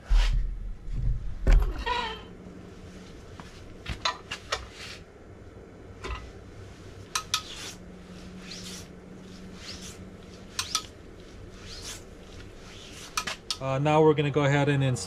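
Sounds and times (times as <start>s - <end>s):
short scraping swishes: 7.2s - 13.5s.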